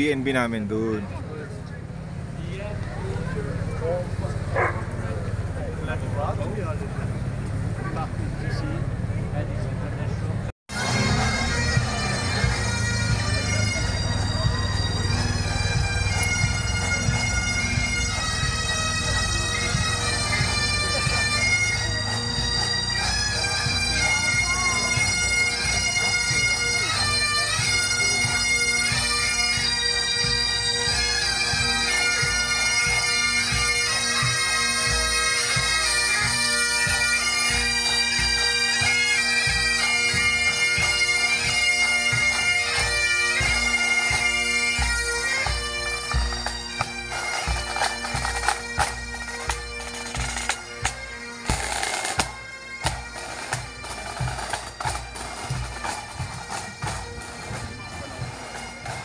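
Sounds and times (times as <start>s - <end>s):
bagpipes playing a march: 0.0s - 8.8s, 10.7s - 59.0s
drums beating: 10.7s - 59.0s.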